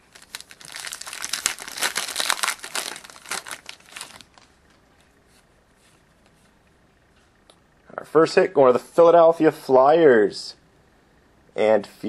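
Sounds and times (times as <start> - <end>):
wrapper crinkling as torn open: 0.0 - 4.5.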